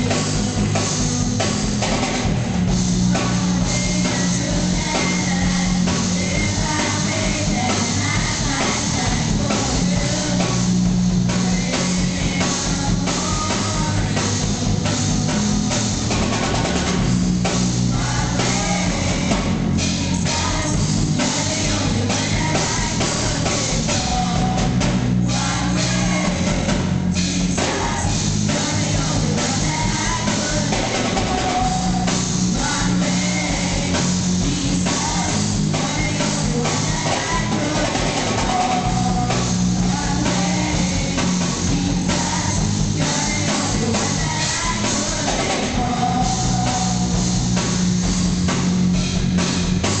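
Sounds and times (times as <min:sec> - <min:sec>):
group of singers: 0:00.0 - 0:47.7
drums steady beat: 0:00.0 - 0:50.0
rock band playing: 0:00.0 - 0:50.0.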